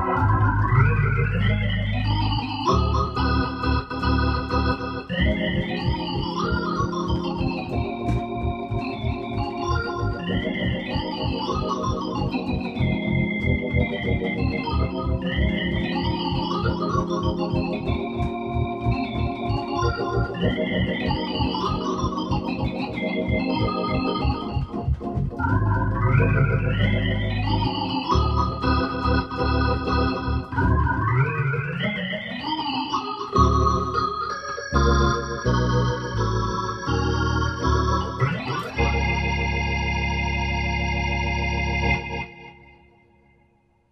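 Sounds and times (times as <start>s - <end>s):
pulsing bass line: 0.0s - 32.1s
organ arpeggiated runs: 0.0s - 43.3s.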